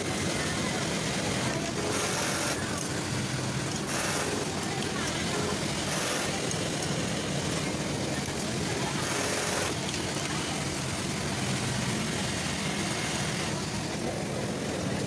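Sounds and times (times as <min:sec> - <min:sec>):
factory machine din: 0:00.0 - 0:15.0
sewing machine stitching: 0:01.4 - 0:06.8, 0:08.8 - 0:09.9.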